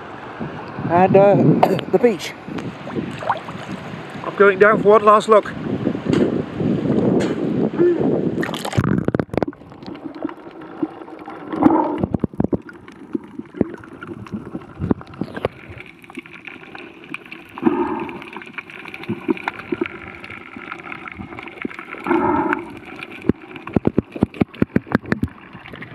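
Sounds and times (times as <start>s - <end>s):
sharp clicks and crackles: 8.4s - 25.9s
muffled underwater hiss: 9.8s - 25.8s.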